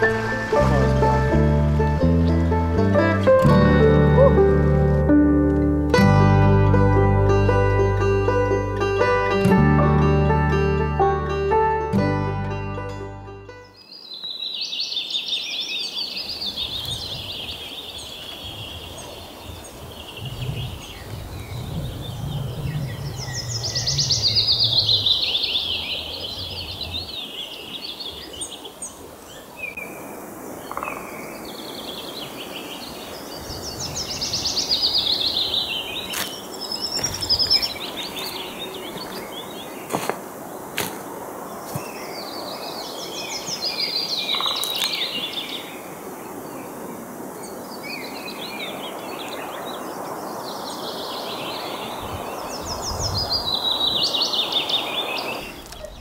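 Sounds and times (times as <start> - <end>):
songbirds trilling and chirping: 13.6 - 56.0
low rumble: 21.4 - 26.6.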